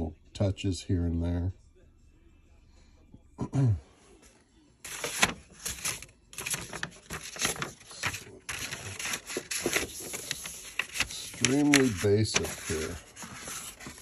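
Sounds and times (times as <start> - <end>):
paper rustling and crinkling: 4.9 - 14.0.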